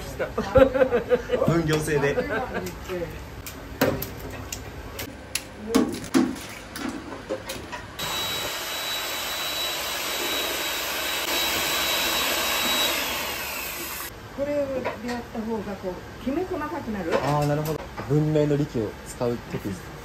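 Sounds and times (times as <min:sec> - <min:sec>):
electric mixer whirring: 0:08.0 - 0:14.1.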